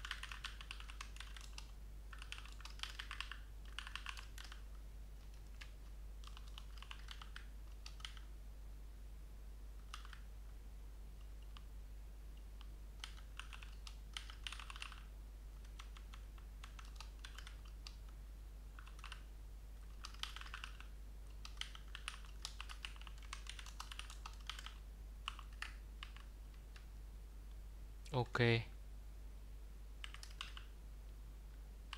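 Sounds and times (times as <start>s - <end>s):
typing on computer keyboard: 0.0s - 4.6s, 5.2s - 8.3s, 9.8s - 10.2s, 13.0s - 18.0s, 18.8s - 19.2s, 19.8s - 26.8s, 30.0s - 30.7s.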